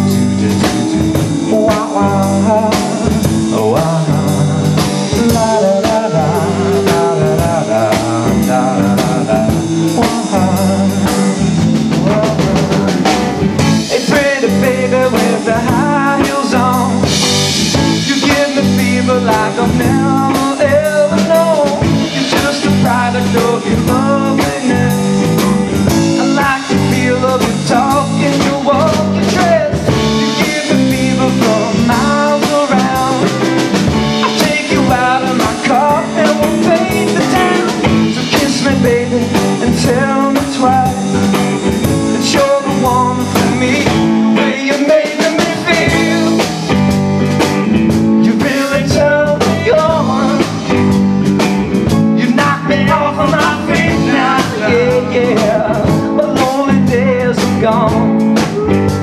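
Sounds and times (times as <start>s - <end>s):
bass guitar: 0.0s - 59.0s
drum kit: 0.0s - 59.0s
electric guitar: 0.0s - 59.0s.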